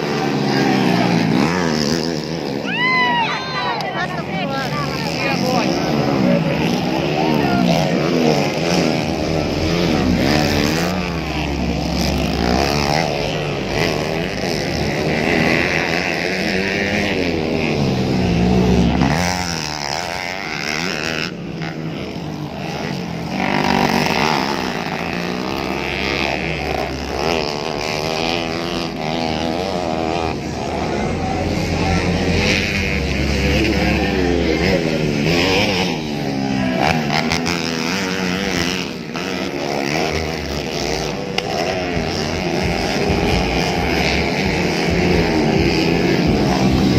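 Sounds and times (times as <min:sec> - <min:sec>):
dirt bike engines revving: 0:00.0 - 0:46.9.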